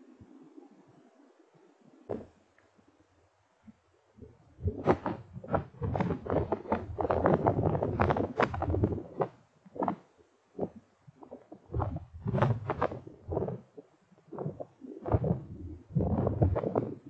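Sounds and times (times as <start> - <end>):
microphone rumbling and crackling: 2.1 - 2.3, 4.2 - 17.0.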